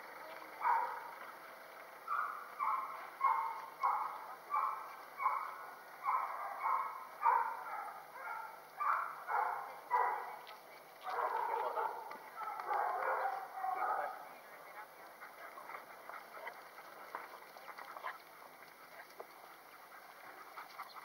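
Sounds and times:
dog barking: 0.6 - 1.1, 2.1 - 10.4, 11.0 - 14.3.

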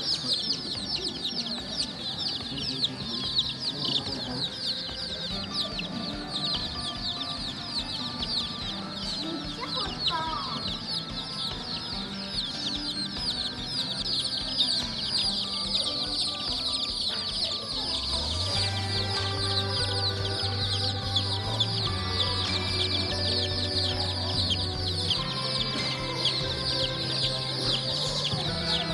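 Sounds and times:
chicks peeping: 0.0 - 28.9.

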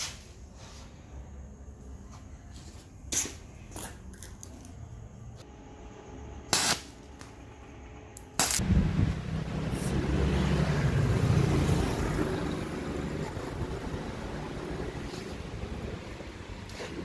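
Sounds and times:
low hum: 5.4 - 17.0
welding arc crackles: 6.5 - 6.9, 8.2 - 8.9.

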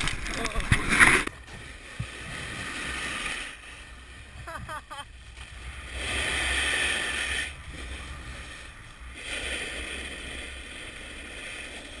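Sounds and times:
snowboard scraping over snow: 2.7 - 12.0.

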